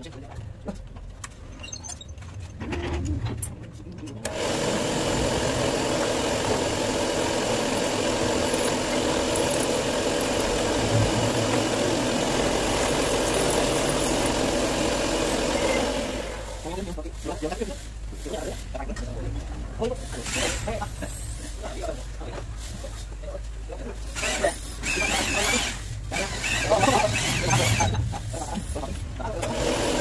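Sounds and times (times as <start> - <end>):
milling machine cutting metal: 4.2 - 16.6, 24.2 - 28.0, 29.4 - 30.0.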